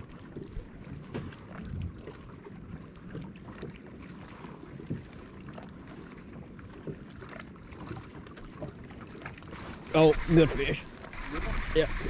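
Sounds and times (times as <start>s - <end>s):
water lapping against boat hull: 0.0s - 12.0s.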